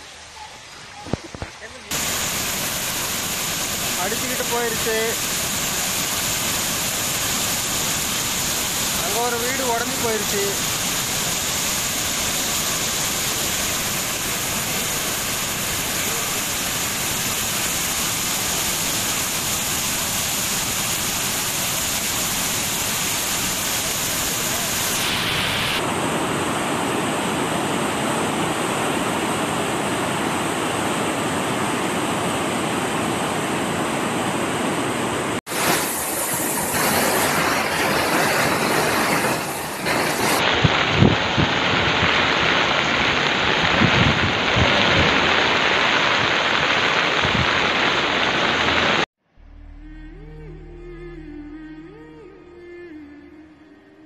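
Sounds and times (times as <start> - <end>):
floodwater rushing: 0.0 - 49.1
water cascading into stream: 0.1 - 34.0, 35.3 - 49.1.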